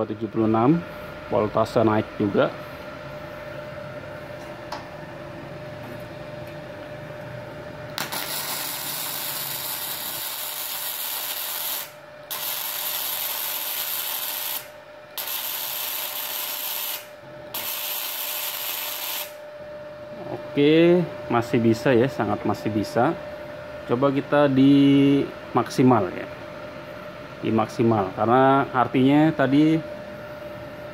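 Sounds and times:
steady high hum: 0.0s - 30.9s
welding arc crackling and hissing: 7.9s - 19.4s.

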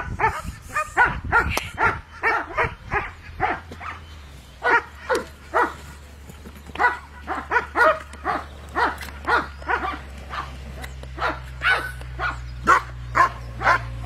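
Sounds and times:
dog barking: 0.1s - 4.0s, 4.6s - 5.9s, 6.8s - 10.6s, 11.2s - 14.0s.

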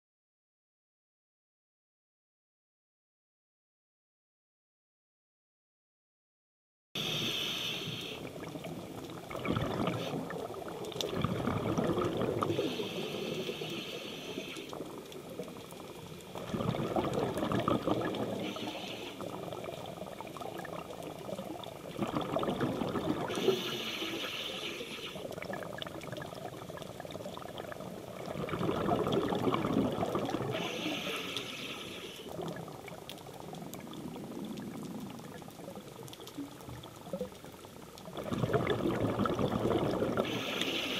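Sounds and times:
regulator inhale hiss: 7.0s - 8.5s, 12.4s - 14.9s, 18.3s - 19.6s, 23.2s - 25.4s, 30.4s - 32.4s, 40.2s - 40.9s
exhaust bubbles underwater: 7.9s - 40.9s.

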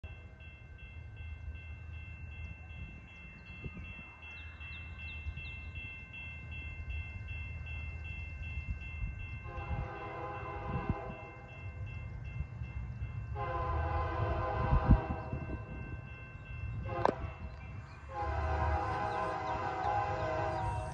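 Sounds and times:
distant locomotive horn: 9.4s - 11.6s, 13.3s - 15.7s, 16.7s - 20.9s.

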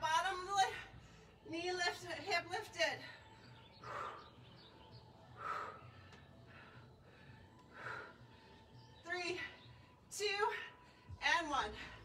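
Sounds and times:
woman breathing hard: 3.2s - 4.6s, 5.3s - 8.9s.

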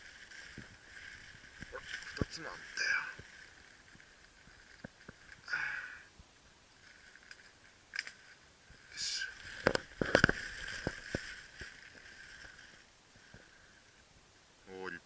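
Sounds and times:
dry leaves crackling underfoot: 0.0s - 5.5s, 6.7s - 13.0s
twigs snapping: 6.9s - 8.4s, 9.4s - 12.8s.

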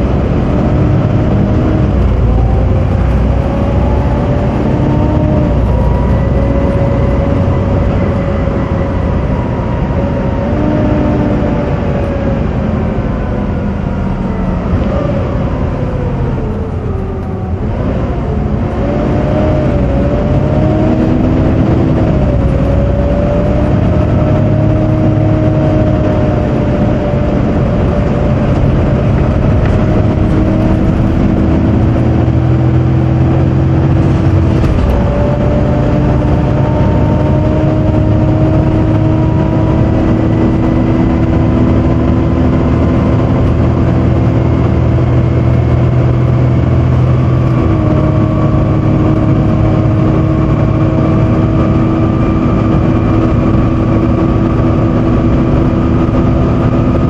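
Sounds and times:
bus engine whine: 0.0s - 57.0s
loud cooling fan drone: 0.0s - 57.0s.

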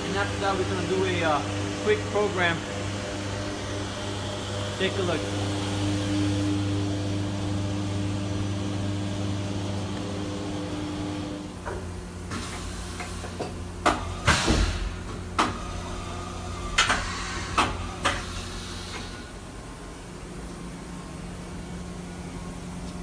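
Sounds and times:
machine humming: 0.0s - 23.0s
short pneumatic hiss: 14.2s - 15.0s, 16.8s - 19.3s.

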